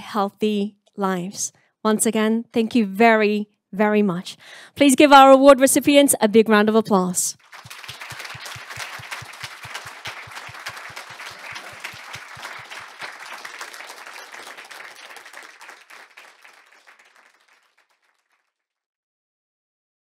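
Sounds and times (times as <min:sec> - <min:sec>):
audience applauding: 0:07.4 - 0:18.5.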